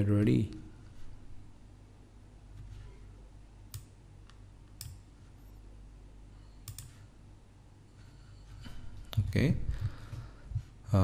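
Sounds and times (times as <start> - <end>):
low steady hum: 0.0 - 11.0
computer mouse clicks: 3.7 - 5.0, 6.6 - 7.0.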